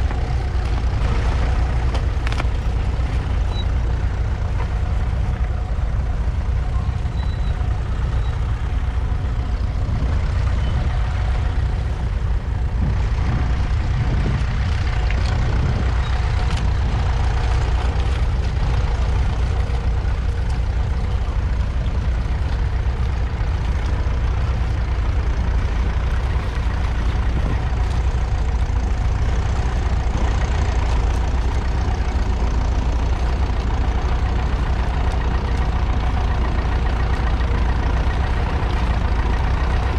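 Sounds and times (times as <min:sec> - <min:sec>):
diesel engine running: 0:00.0 - 0:39.9.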